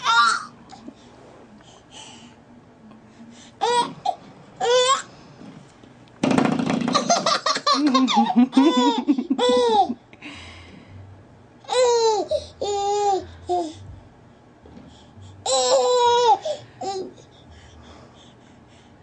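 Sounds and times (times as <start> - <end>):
baby laughing: 6.9 - 10.0, 11.7 - 13.7, 15.5 - 17.1.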